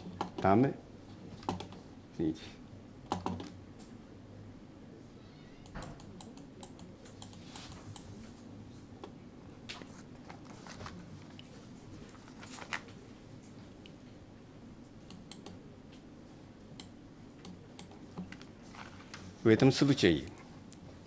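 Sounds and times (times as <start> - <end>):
faint low room hum: 0.0 - 21.0
keyboard and mouse clicks: 1.4 - 1.8, 3.1 - 3.6, 5.6 - 8.1, 15.1 - 15.6.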